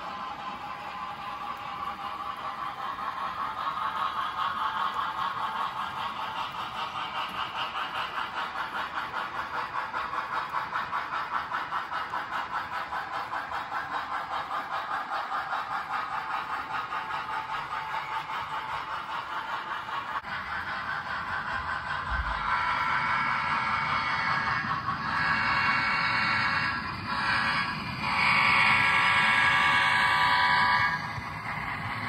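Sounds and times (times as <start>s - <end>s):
model train whirring and clattering: 0.0s - 32.0s.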